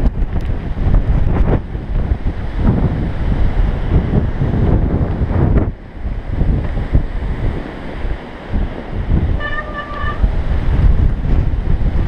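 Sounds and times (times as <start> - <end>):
wind buffeting microphone: 0.0 - 12.0
high-pitched tone: 9.4 - 10.2.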